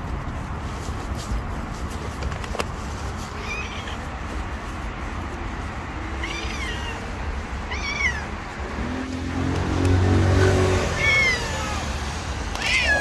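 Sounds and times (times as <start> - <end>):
low traffic rumble: 0.0 - 13.0
cat meowing: 3.3 - 4.2, 6.1 - 8.5, 10.8 - 13.0.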